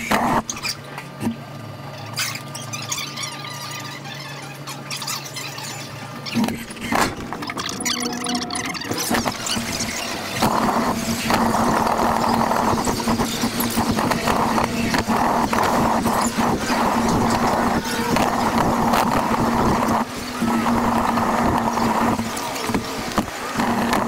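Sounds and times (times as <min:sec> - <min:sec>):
wheels and frame rattling: 0:02.0 - 0:24.0
electric motor humming: 0:06.1 - 0:24.0.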